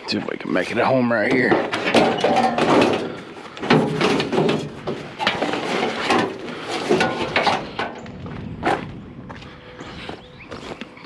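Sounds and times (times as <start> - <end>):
scrap metal clanking: 1.1 - 8.0.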